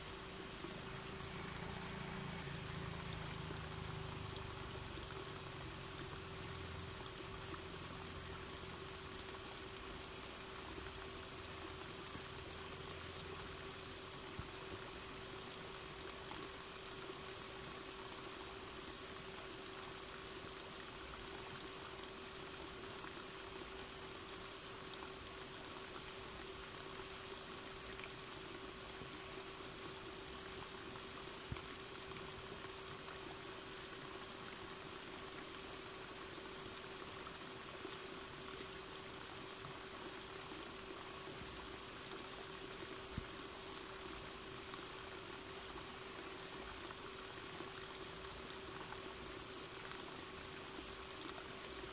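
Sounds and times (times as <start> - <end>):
faint constant hum: 0.0 - 51.9
steady hiss: 0.0 - 51.9.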